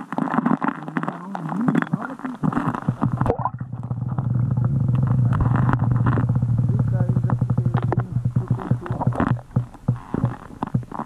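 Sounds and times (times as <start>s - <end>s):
knocks and clicks: 2.5s - 11.0s.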